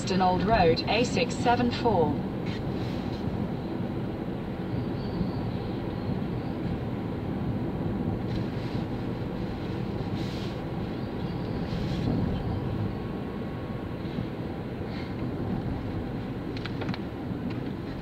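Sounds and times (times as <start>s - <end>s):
car engine and tyre rumble: 0.0s - 18.0s
short hisses of wet road: 2.5s - 3.3s, 8.3s - 10.8s.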